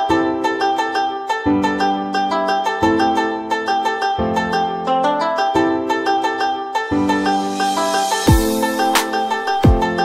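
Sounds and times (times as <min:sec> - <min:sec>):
plucked string instrument: 0:00.0 - 0:10.0.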